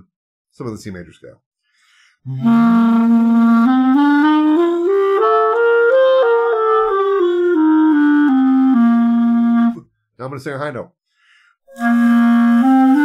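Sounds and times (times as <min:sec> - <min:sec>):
clarinet playing scale: 0:02.3 - 0:09.8, 0:11.7 - 0:13.0.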